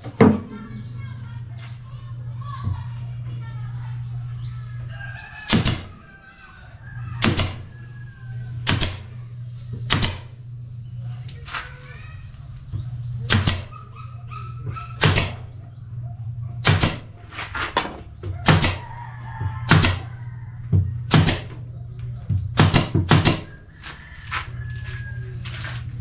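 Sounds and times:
machine humming: 0:00.0 - 0:26.0
pneumatic nail gun firing: 0:05.5 - 0:06.1, 0:07.2 - 0:10.4, 0:12.8 - 0:13.9, 0:14.7 - 0:15.6, 0:16.6 - 0:19.0, 0:19.6 - 0:20.2, 0:21.1 - 0:21.7, 0:22.5 - 0:23.6.

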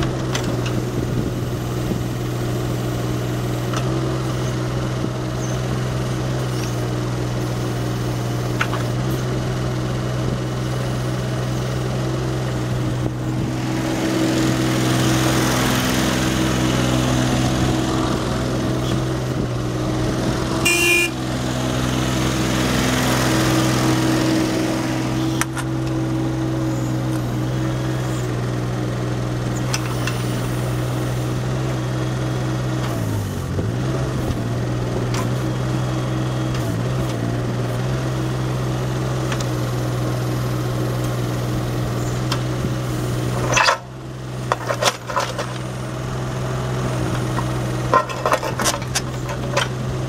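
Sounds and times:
excavator diesel engine running: 0:00.0 - 0:50.0
hydraulics working: 0:32.7 - 0:50.0.

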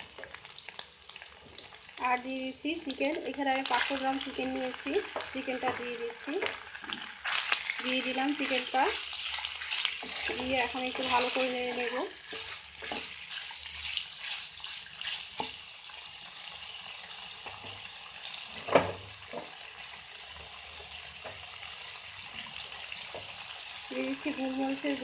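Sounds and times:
food sizzling in hot oil: 0:00.0 - 0:25.0
spatula scraping and knocking pan: 0:05.1 - 0:14.4.

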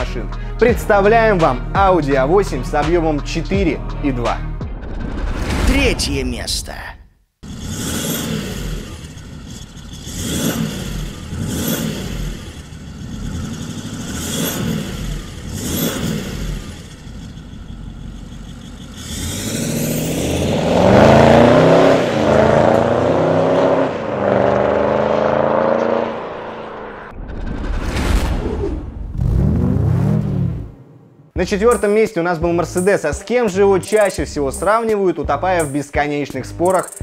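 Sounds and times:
diesel engine revving: 0:07.4 - 0:27.2, 0:29.1 - 0:31.2.

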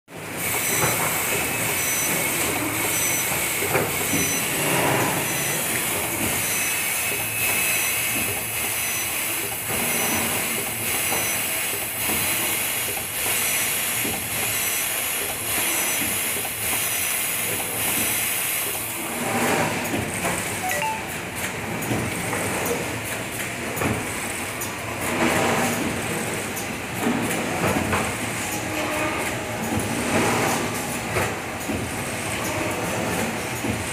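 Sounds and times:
machine mechanical hiss: 0:00.3 - 0:19.0
short high tone: 0:20.6 - 0:21.2.

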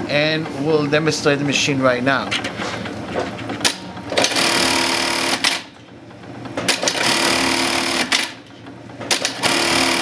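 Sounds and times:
sewing machine running: 0:03.6 - 0:08.5, 0:09.1 - 0:10.0.

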